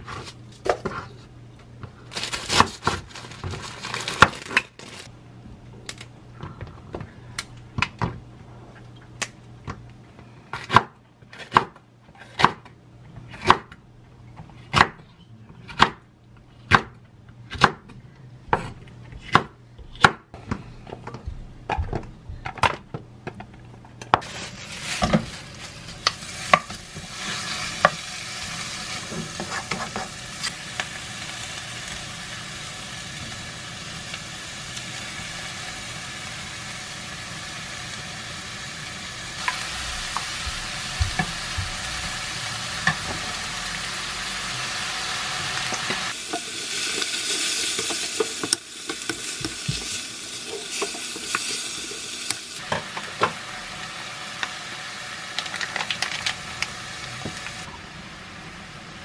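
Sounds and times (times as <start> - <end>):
knife chopping on wooden board: 13.3 - 13.7, 16.7 - 17.9, 18.5 - 20.2
meat sizzling in a wok: 24.2 - 58.8.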